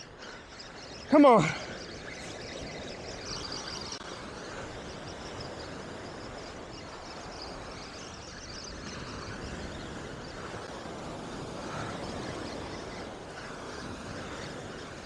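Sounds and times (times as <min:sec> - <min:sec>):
wind buffeting microphone: 0:00.0 - 0:15.0
surf washing onto beach: 0:03.6 - 0:15.0.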